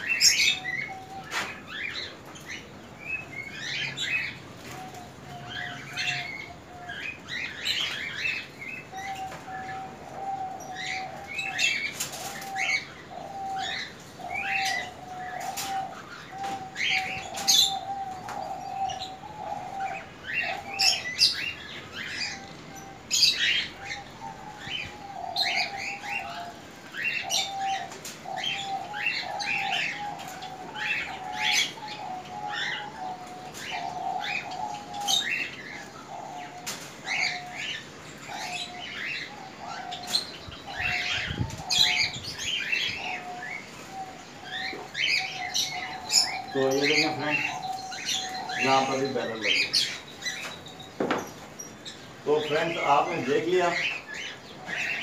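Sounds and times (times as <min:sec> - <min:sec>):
birds chirping: 0:00.0 - 0:55.0.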